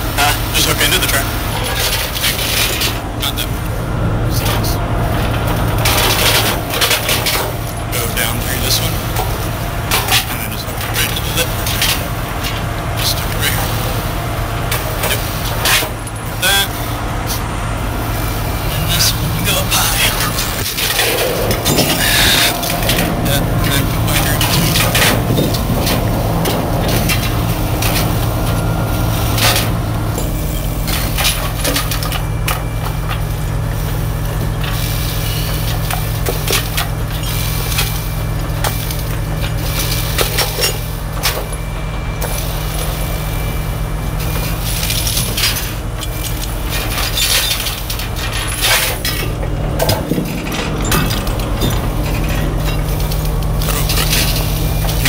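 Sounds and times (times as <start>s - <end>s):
diesel truck engine idling: 0.0s - 55.0s
chain clanking on steel tracks: 18.1s - 43.6s, 44.2s - 55.0s.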